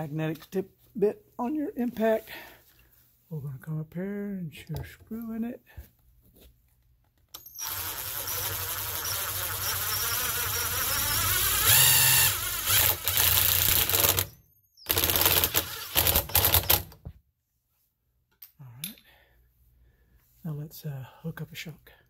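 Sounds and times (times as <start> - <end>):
impact driver hammering screw: 7.6 - 14.3, 14.9 - 16.8.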